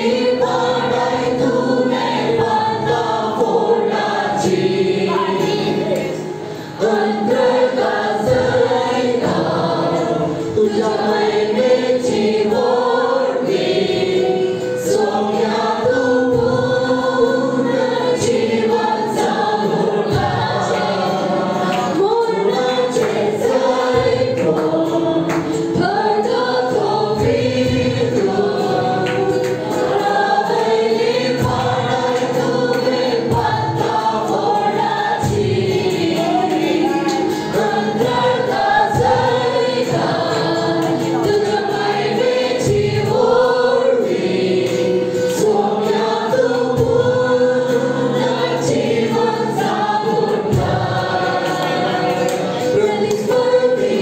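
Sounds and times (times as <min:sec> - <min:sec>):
group singing worship song: 0:00.0 - 0:54.0
instrumental accompaniment: 0:00.0 - 0:54.0.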